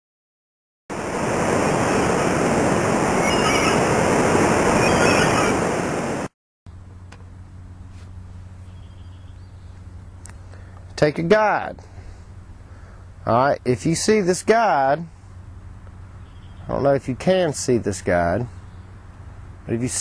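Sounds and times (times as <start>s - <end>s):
loud steady rushing noise: 0.9s - 6.3s
low steady hum: 6.7s - 20.0s.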